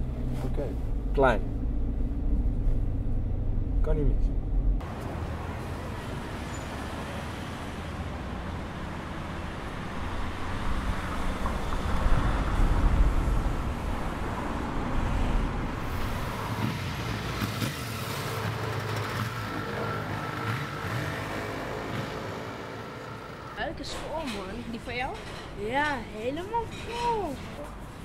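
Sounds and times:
cars rumbling on street: 0.0 - 28.0
vehicle passing: 0.5 - 24.9.

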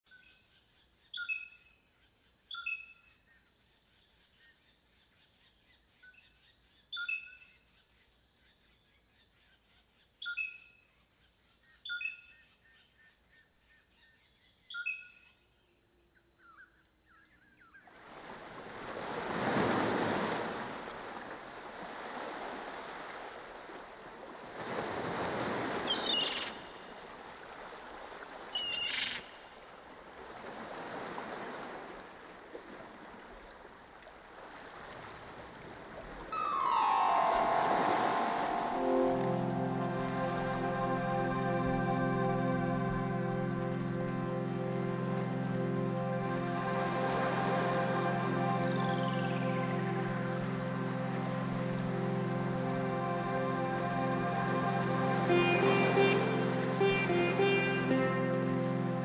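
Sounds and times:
bird chirps: 25.9 - 26.9, 28.6 - 29.5, 36.3 - 39.4
rushing noise: 36.4 - 41.4
high insect drone: 36.4 - 45.4.

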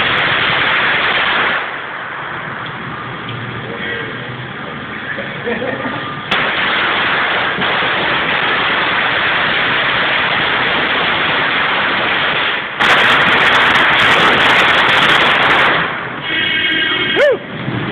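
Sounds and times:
firecrackers crackling: 0.0 - 17.9.

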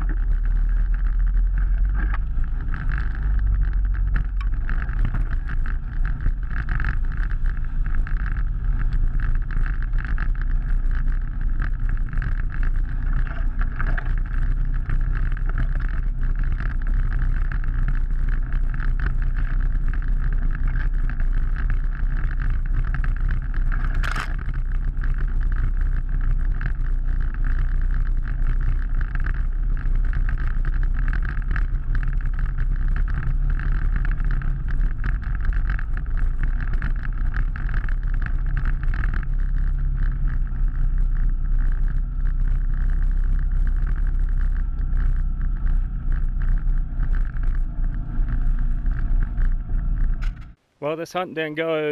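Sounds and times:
off-road vehicle engine running: 0.0 - 51.9.

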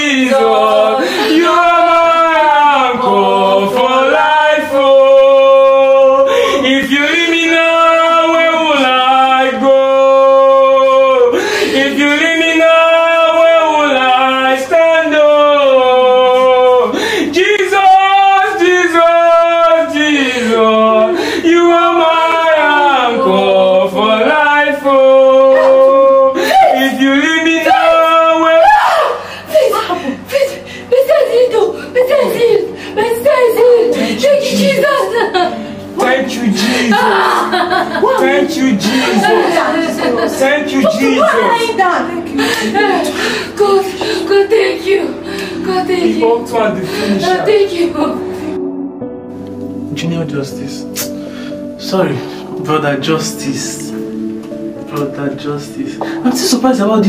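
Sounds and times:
man singing gospel song: 0.0 - 28.7, 34.0 - 41.6, 45.1 - 48.5.

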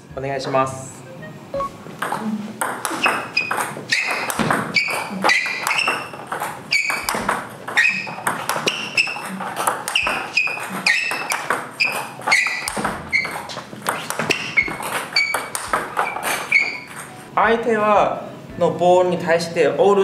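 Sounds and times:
table tennis ball pinging clicks: 2.0 - 17.1.

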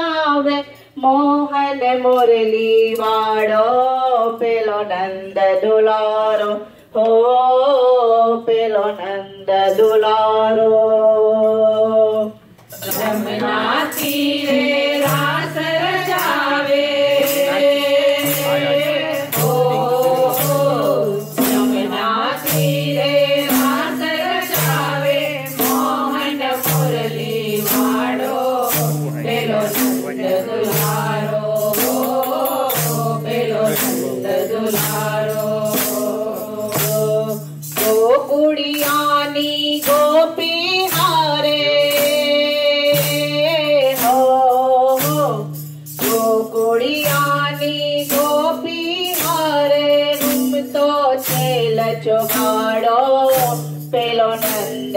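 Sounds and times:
women singing in unison: 0.0 - 54.9.

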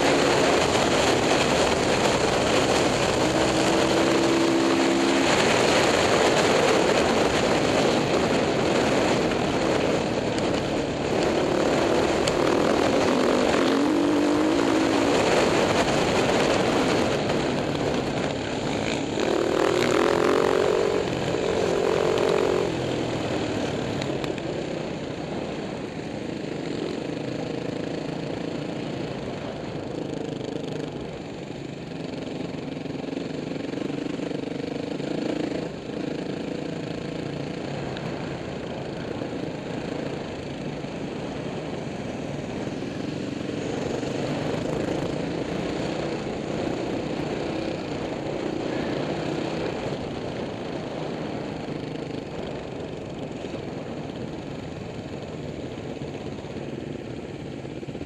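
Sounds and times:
motorcycle engine revving: 0.0 - 24.6.

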